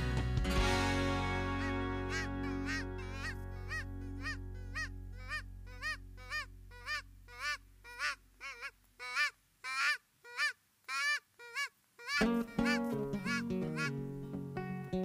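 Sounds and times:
background music: 0:00.0 - 0:06.8, 0:12.2 - 0:15.0
goose call honks: 0:02.0 - 0:14.0.

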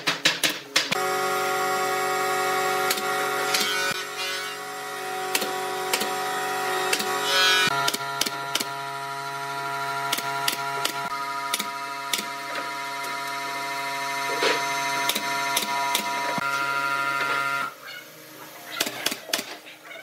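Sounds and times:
nail gun firing: 0:07.8 - 0:08.7, 0:10.1 - 0:12.4, 0:15.0 - 0:16.2.

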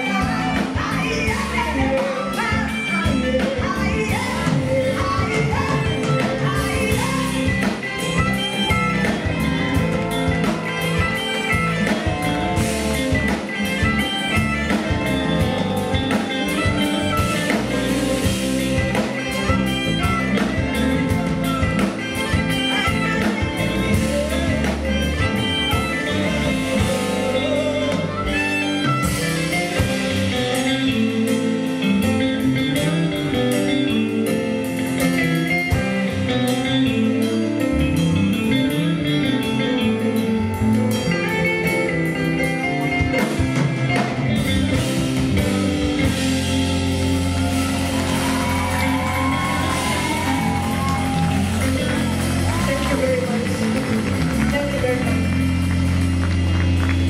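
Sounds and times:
woman singing: 0:00.0 - 0:32.1
live band playing: 0:00.0 - 0:57.0.

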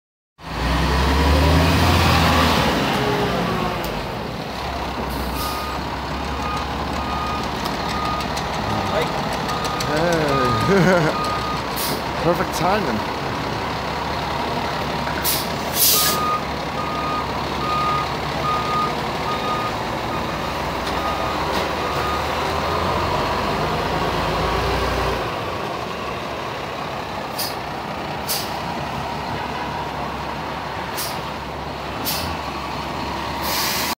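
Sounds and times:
fire engine engine running: 0:02.2 - 0:33.9
reversing beeps: 0:05.4 - 0:05.8, 0:06.4 - 0:11.6, 0:15.9 - 0:20.3, 0:21.0 - 0:22.4
air brake hisses: 0:11.8 - 0:12.0, 0:15.2 - 0:16.2, 0:27.3 - 0:27.6, 0:28.2 - 0:28.6, 0:30.9 - 0:31.2, 0:32.0 - 0:32.4, 0:33.4 - 0:33.9.

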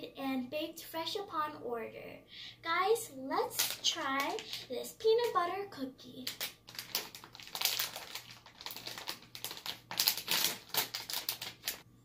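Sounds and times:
plastic bag crinkling: 0:03.5 - 0:04.7, 0:06.2 - 0:11.8.

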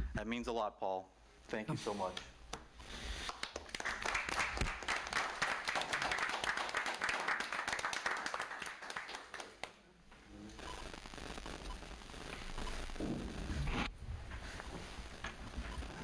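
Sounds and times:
people applauding: 0:03.2 - 0:09.8.

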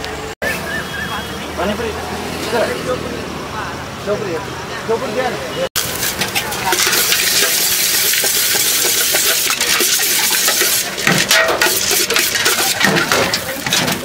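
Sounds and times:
dry snack stirred in steel bowl: 0:05.8 - 0:14.0.

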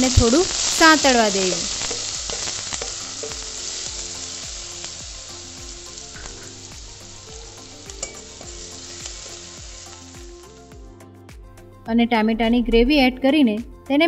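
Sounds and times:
onion sizzling in hot oil: 0:00.0 - 0:10.8
spoon clinking on pan: 0:07.9 - 0:08.5.

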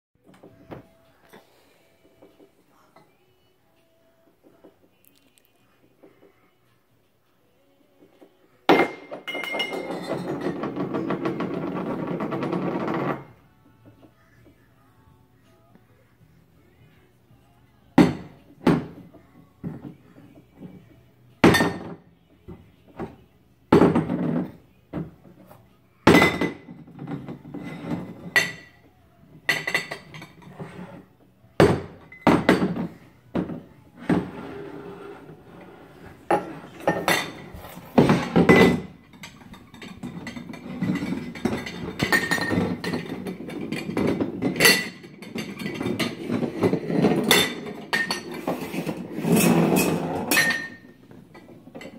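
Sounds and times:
glass jars clinking: 0:08.7 - 0:13.3, 0:36.3 - 0:51.9.

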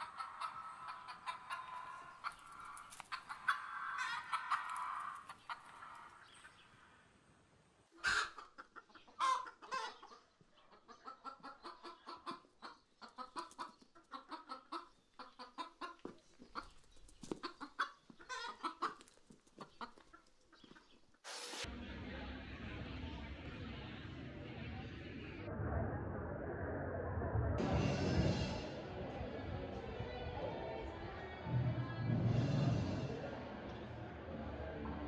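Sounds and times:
chicken squawking: 0:00.0 - 0:06.2, 0:08.0 - 0:10.2, 0:17.4 - 0:19.0
chicken clucking: 0:00.0 - 0:06.7, 0:07.9 - 0:21.2.

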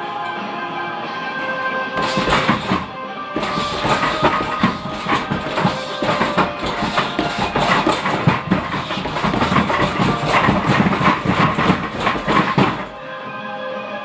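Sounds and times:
punches thudding into heavy bag: 0:02.0 - 0:13.0.

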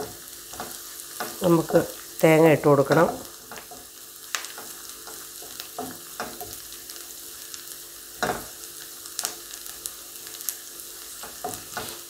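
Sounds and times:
onions sizzling in hot oil: 0:00.0 - 0:12.0
wooden spatula scraping pan: 0:11.2 - 0:12.0.

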